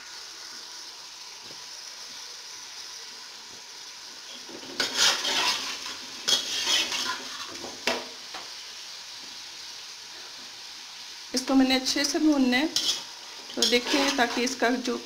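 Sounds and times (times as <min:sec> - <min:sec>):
chicken sizzling in oil: 0:00.0 - 0:15.0
metal spatula scraping pot: 0:04.6 - 0:07.7, 0:12.7 - 0:14.6.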